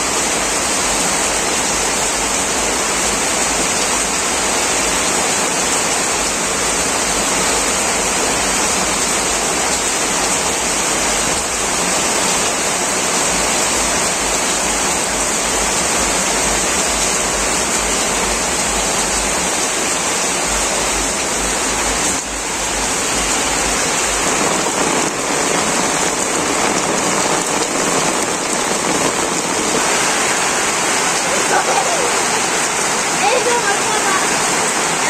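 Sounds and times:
heavy rain on vegetation: 0.0 - 35.0.

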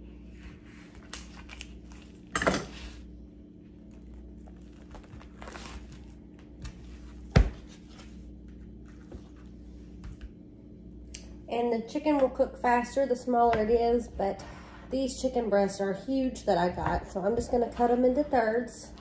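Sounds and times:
plastic wrap crinkling and tearing: 0.9 - 2.3, 3.8 - 6.2.

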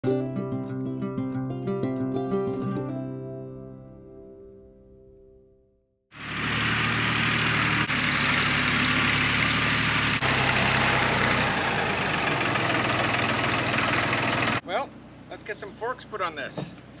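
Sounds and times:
loader tractor engine running: 6.1 - 15.3.

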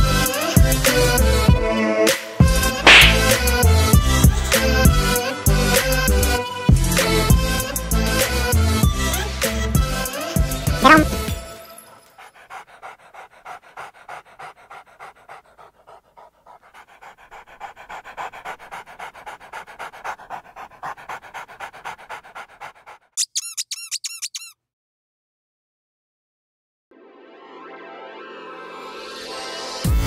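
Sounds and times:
dog panting: 2.4 - 24.5
high squeaks: 23.2 - 24.6.

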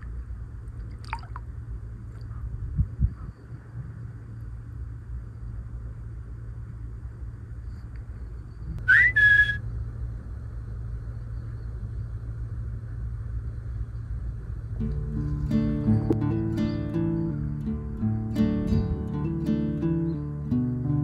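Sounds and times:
low rumble: 0.0 - 21.0
two-note whistle: 8.8 - 9.6.

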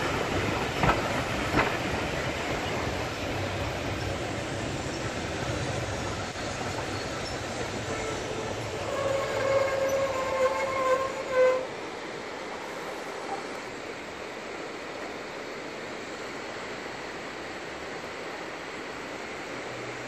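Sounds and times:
running train rumble: 0.0 - 20.0
steam locomotive whistle: 7.9 - 11.8.

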